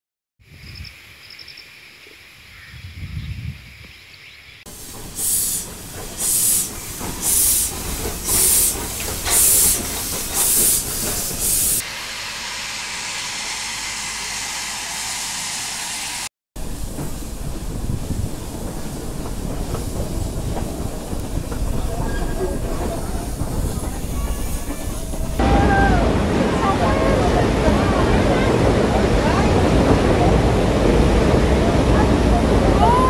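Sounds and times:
steady steam hiss: 4.7 - 25.4
steam locomotive bursts: 4.7 - 27.7.

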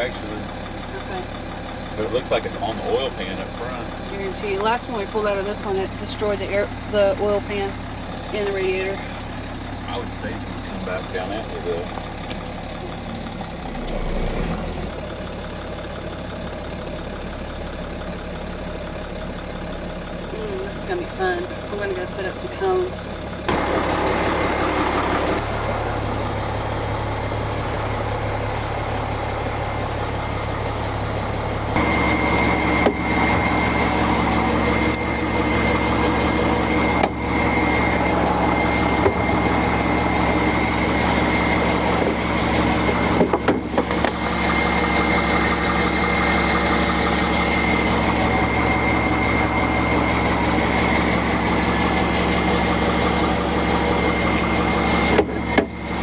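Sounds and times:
truck engine idling: 0.0 - 56.0
steady high whine: 23.4 - 56.0.

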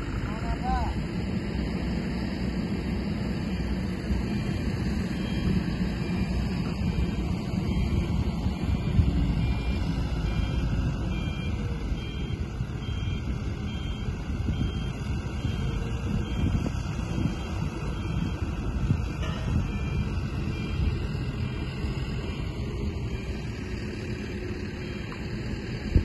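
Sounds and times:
diesel engine running: 0.0 - 26.0
wind buffeting microphone: 1.0 - 26.0
faint high beeps: 4.2 - 23.8.

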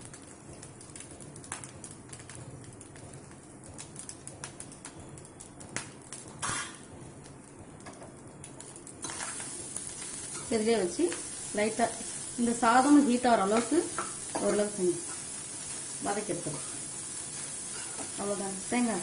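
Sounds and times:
rice sizzling: 0.0 - 19.0
metal spoon scraping a pan: 16.6 - 18.2.

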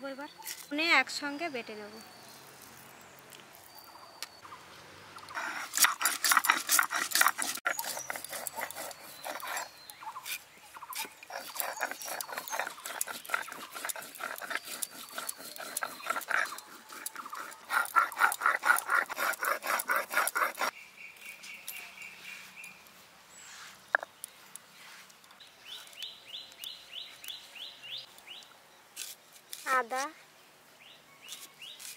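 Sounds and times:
stone pestle grinding spices: 5.3 - 20.7.

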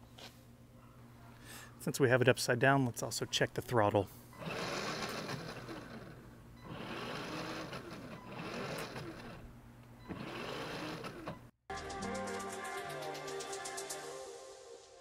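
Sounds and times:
electric motors whining: 4.4 - 11.5.

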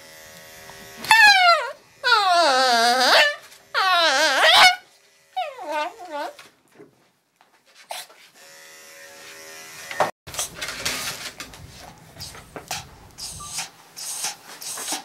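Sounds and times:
electric clippers humming: 0.0 - 6.4, 8.4 - 10.2
rustling and handling noises: 10.3 - 13.1.

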